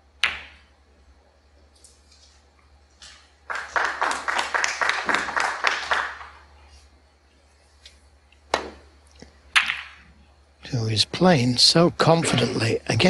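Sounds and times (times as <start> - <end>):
cue tip striking ball: 0.2 - 0.7, 8.5 - 8.9, 9.6 - 10.0
audience applause: 3.4 - 6.4.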